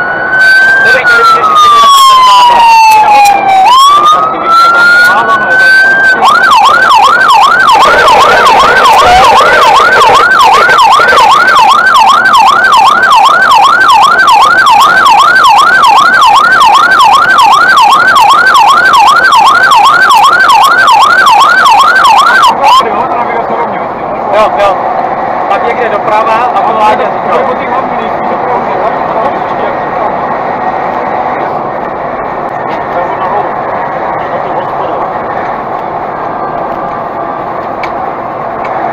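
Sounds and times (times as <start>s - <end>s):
fire engine siren yelping: 0.0s - 23.6s
engine and road noise: 0.0s - 38.9s.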